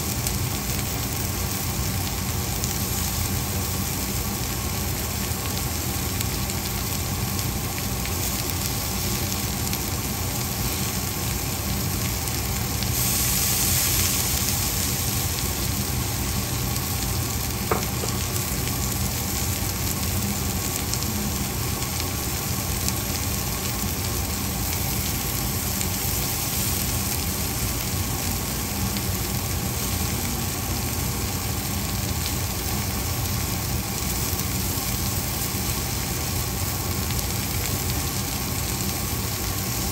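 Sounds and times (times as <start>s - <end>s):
low steady hum: 0.0s - 39.9s
vegetables sizzling in a pan: 0.0s - 39.9s.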